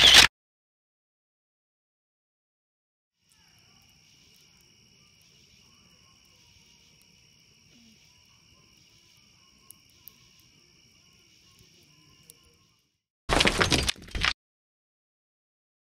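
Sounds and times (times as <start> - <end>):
crickets chirping: 3.2 - 13.0
campfire pops: 9.4 - 12.6.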